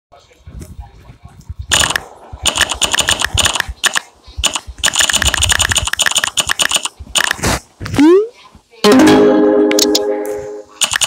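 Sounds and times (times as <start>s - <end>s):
smartphone keyboard typing clicks: 1.7s - 7.4s, 10.8s - 11.0s.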